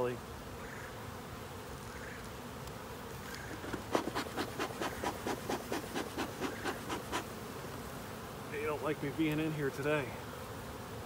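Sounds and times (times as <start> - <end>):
bees humming: 0.0 - 11.0
bellows puffing: 3.4 - 7.4.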